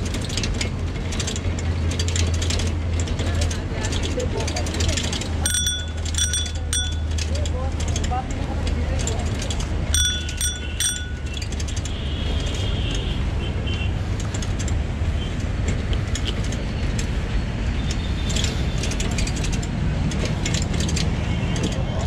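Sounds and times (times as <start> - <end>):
bicycle rattling and clicking: 0.0 - 22.0
bicycle bell ringing: 5.4 - 7.3, 9.9 - 11.4.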